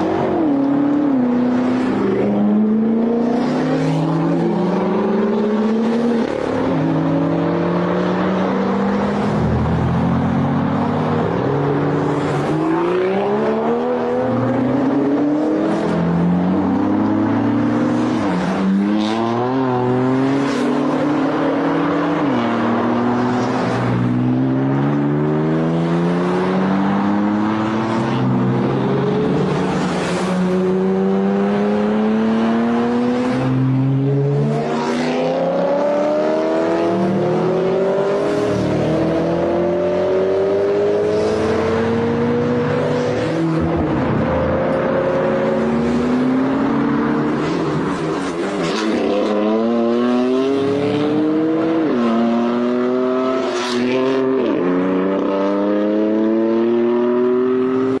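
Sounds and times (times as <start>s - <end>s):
car engines accelerating hard: 0.0s - 58.0s.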